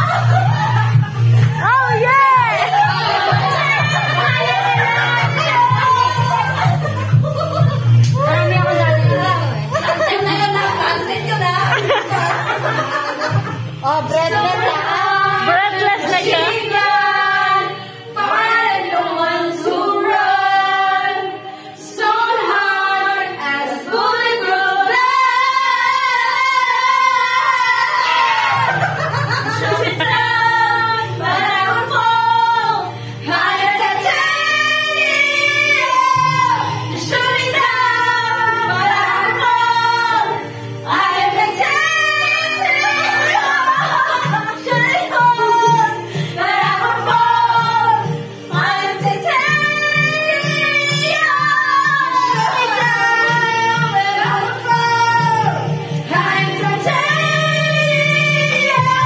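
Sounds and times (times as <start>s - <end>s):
bass line: 0.0s - 17.0s
woman singing: 13.8s - 21.1s, 29.6s - 59.0s.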